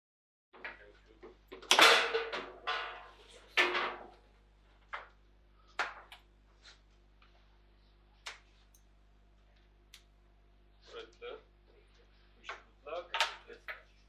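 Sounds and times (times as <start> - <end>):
foosball table knocks: 1.6 - 4.2.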